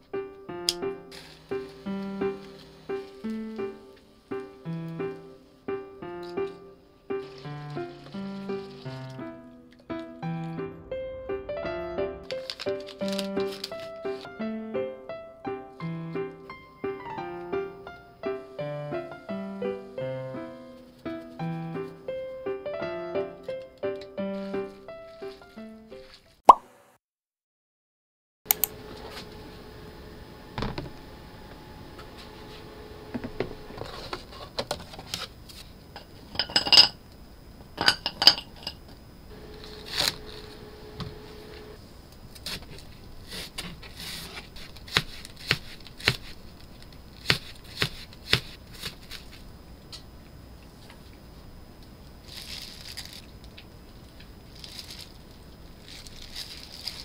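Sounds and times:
dishes and glass clinking: 36.3 - 37.0, 37.8 - 38.8
knife chopping on plastic board: 44.9 - 46.3, 47.2 - 49.0.

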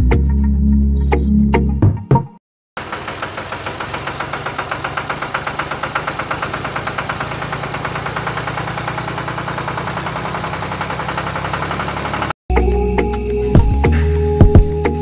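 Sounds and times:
tractor engine idling: 2.8 - 12.4.

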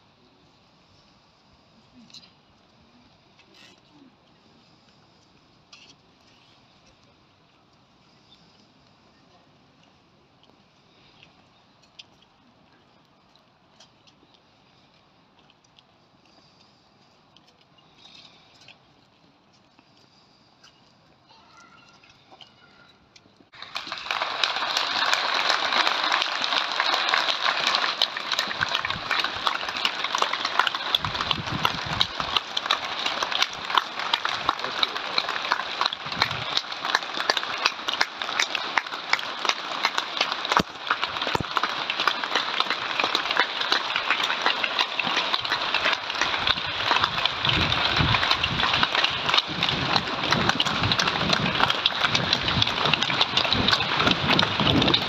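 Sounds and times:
crowd applauding: 23.5 - 55.0.

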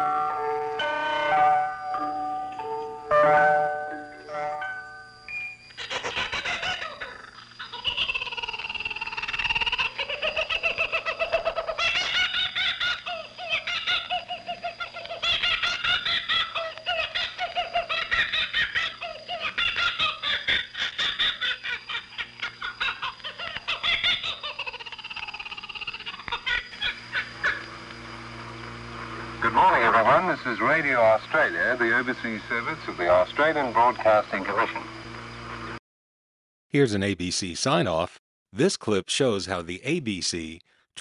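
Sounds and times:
kookaburra chattering call: 5.8 - 27.7.

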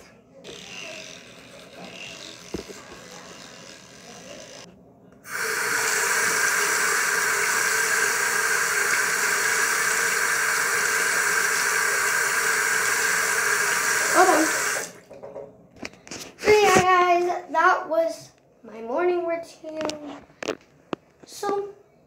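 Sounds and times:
tap turned on: 2.5 - 3.1
water running into sink: 5.3 - 15.3.

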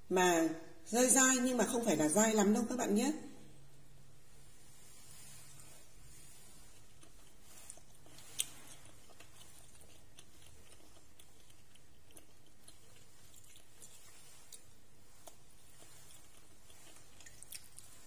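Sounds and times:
wet chewing sounds: 5.1 - 18.0.

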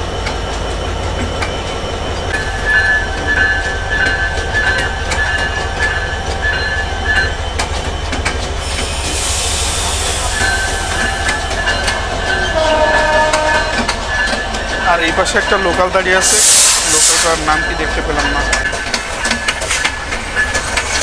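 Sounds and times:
train rumbling on rails: 0.0 - 21.0
train wheels squealing: 0.0 - 21.0
burst of hiss: 16.2 - 17.4.

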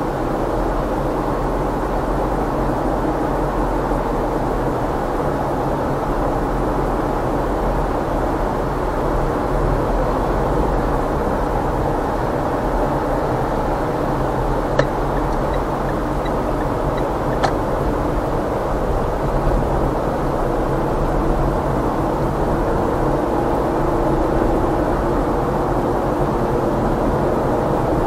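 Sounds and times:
car driving road noise: 0.0 - 28.0
sharp click: 17.0 - 17.6.

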